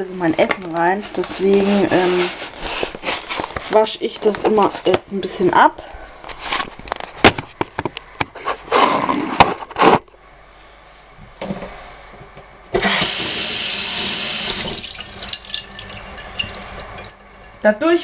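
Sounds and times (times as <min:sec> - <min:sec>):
knocks and rustling from handling: 0:06.3 - 0:08.6
tap water running: 0:12.8 - 0:17.6.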